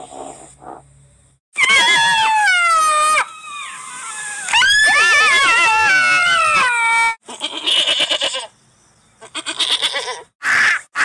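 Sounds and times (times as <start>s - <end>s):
tahr bleating: 7.2s - 8.5s.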